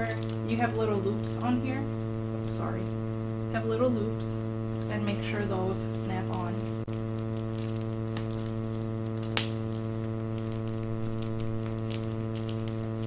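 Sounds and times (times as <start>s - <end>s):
mains hum: 0.0s - 13.0s
plastic rustling and clicks: 6.9s - 13.0s.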